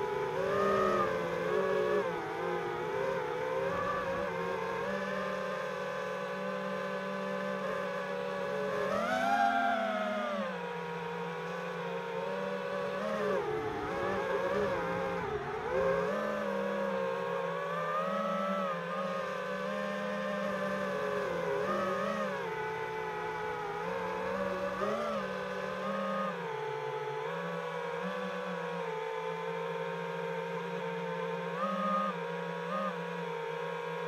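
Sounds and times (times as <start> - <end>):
drone motors whining: 0.0 - 34.0.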